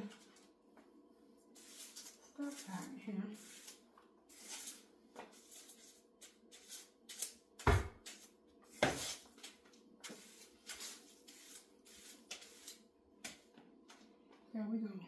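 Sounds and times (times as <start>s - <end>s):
rustles and scrapes: 1.5s - 7.4s, 8.0s - 12.9s.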